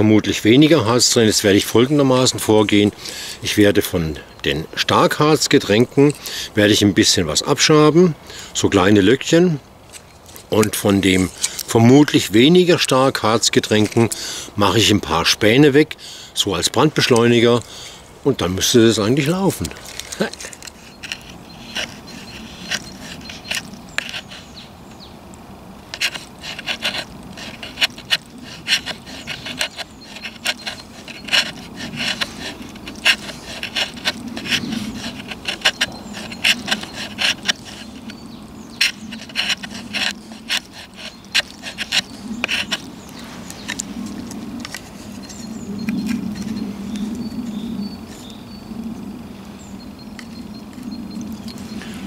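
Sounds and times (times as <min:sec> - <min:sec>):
knife scraping wood: 0:09.9 - 0:15.2, 0:18.8 - 0:24.6, 0:25.9 - 0:48.4.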